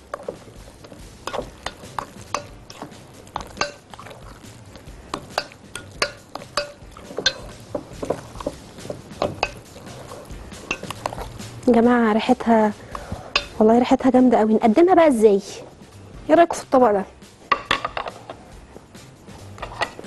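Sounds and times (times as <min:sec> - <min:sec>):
spoon clinking against glass bowl: 0:01.2 - 0:04.1, 0:05.1 - 0:08.5, 0:09.2 - 0:09.9, 0:10.6 - 0:11.2, 0:13.3 - 0:13.6.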